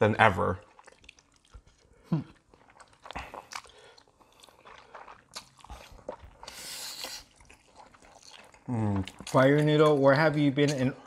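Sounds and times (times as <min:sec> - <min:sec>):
wet chewing and mouth clicks: 0:00.2 - 0:11.0
noodle slurp: 0:00.6 - 0:09.9.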